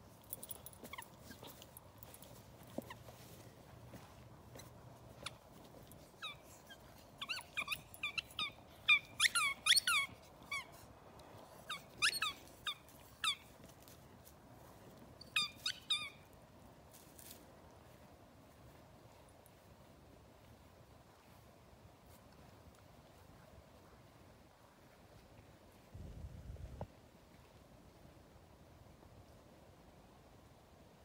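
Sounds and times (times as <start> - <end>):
rubber toy ball squeaking: 7.2 - 10.7.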